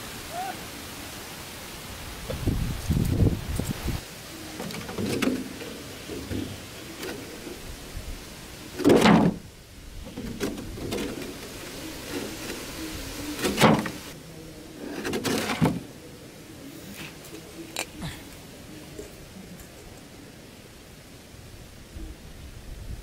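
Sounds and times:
hands scraping sandy soil: 0:10.1 - 0:15.6.

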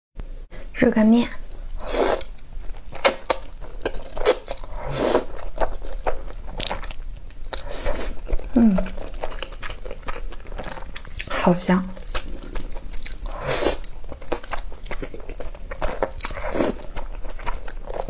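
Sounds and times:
person slurping noodles: 0:01.8 - 0:02.3, 0:04.2 - 0:05.4, 0:13.2 - 0:13.9
chewing with wet mouth clicks: 0:02.9 - 0:18.0.

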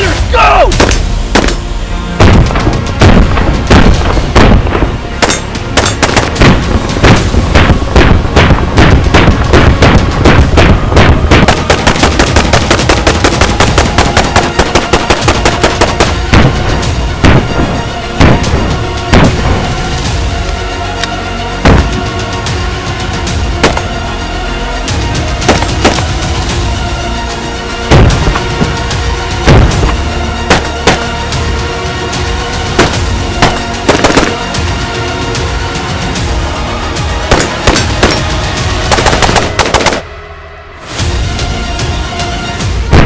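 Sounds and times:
music: 0:00.0 - 0:43.0
rapid gunshots: 0:00.7 - 0:01.6, 0:02.2 - 0:19.4, 0:23.6 - 0:23.9, 0:25.4 - 0:26.2, 0:27.9 - 0:28.8, 0:29.5 - 0:31.1, 0:32.8 - 0:34.6, 0:37.3 - 0:40.1
rifle shots: 0:00.8 - 0:01.6, 0:02.2 - 0:16.6, 0:25.5 - 0:26.1, 0:30.5 - 0:31.1, 0:32.8 - 0:34.5, 0:37.3 - 0:38.3, 0:38.9 - 0:40.1.

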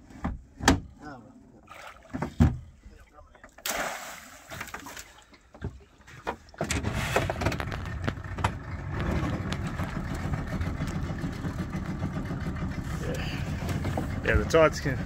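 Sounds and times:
outboard motor running: 0:06.6 - 0:15.0.

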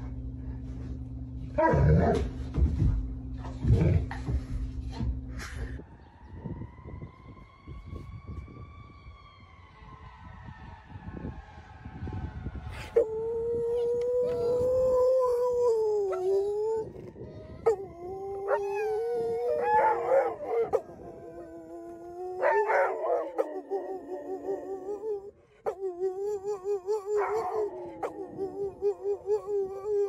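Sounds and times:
dog howling: 0:13.0 - 0:30.0.

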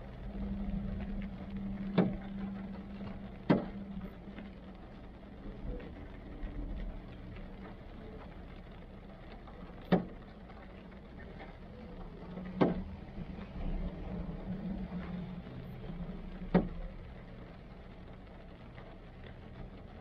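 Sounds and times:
low hum: 0:00.0 - 0:09.8, 0:10.5 - 0:20.0
rain ticking on car roof: 0:00.0 - 0:20.0.

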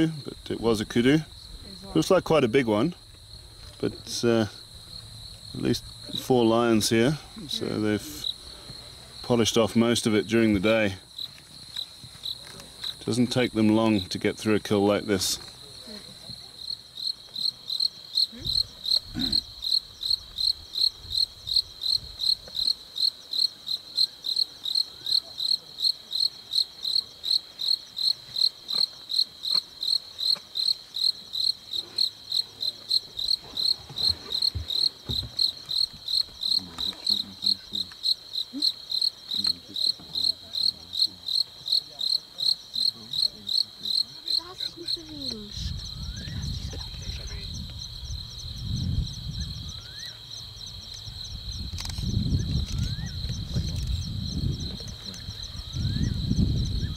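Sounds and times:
cricket chirping: 0:00.0 - 0:56.9.

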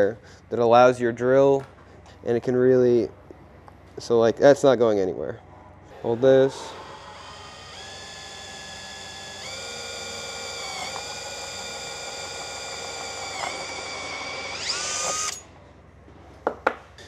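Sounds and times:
electric drill boring sheet metal: 0:06.0 - 0:15.5.

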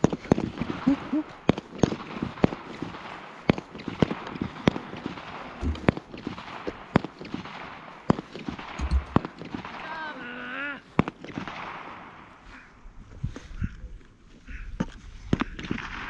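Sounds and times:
gunshots: 0:00.3 - 0:10.0, 0:11.0 - 0:12.4.

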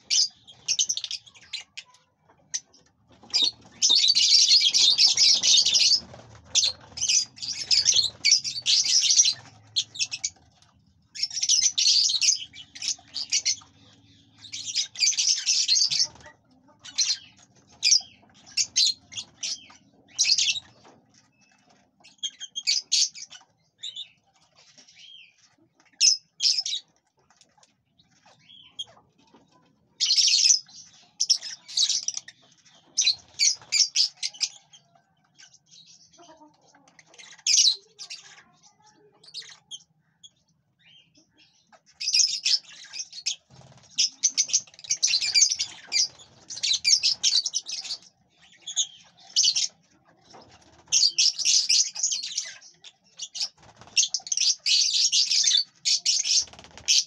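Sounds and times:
small parrots chattering: 0:00.0 - 0:57.0.

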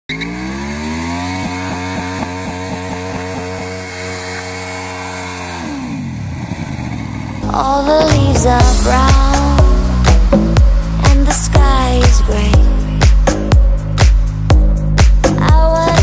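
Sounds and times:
tyre spinning on asphalt: 0:00.1 - 0:07.4
motorcycle engine revving hard: 0:00.1 - 0:13.4.

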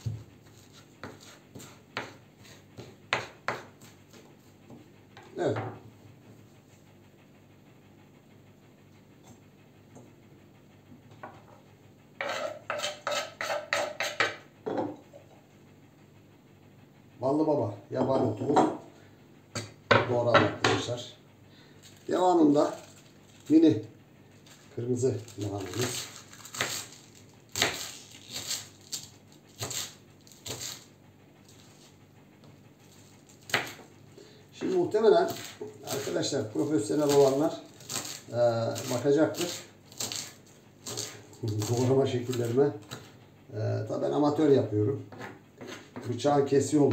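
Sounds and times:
knife scraping wooden cutting board: 0:00.0 - 0:05.3, 0:12.2 - 0:15.0, 0:24.5 - 0:30.9, 0:34.6 - 0:43.1, 0:45.1 - 0:46.2
knife slicing on cutting board: 0:29.6 - 0:30.8, 0:35.3 - 0:36.2.

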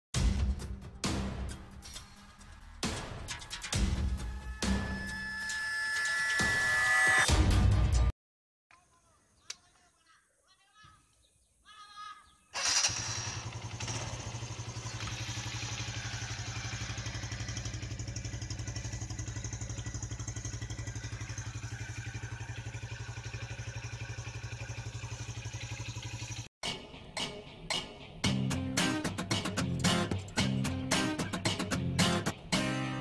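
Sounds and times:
motorcycle engine starting and idling: 0:12.5 - 0:26.5.

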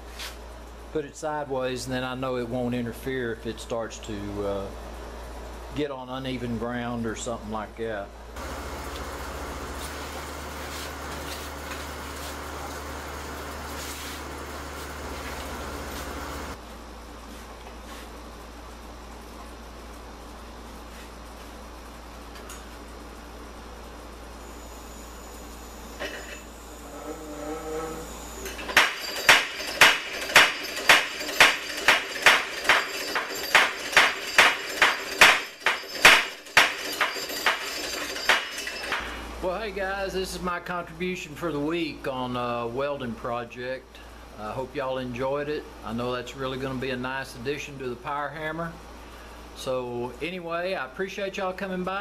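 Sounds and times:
machinery humming and rushing: 0:08.4 - 0:16.6
power hammer striking anvil: 0:28.4 - 0:39.2.

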